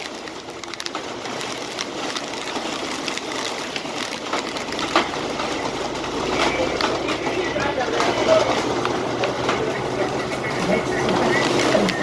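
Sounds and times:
heavy rain pelting a vehicle: 0.0 - 12.0.

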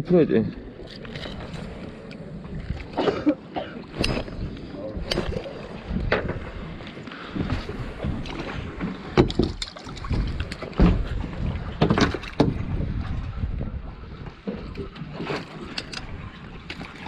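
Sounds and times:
wind buffeting microphone: 3.9 - 15.0
footsteps on boat deck: 5.9 - 12.8
handling knocks and thumps: 9.1 - 12.7.

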